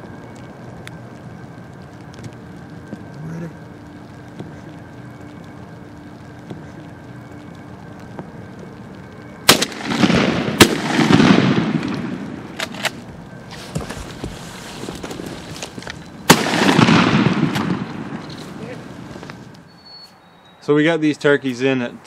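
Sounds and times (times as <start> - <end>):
shotgun blasts: 9.4 - 13.0, 16.3 - 18.2.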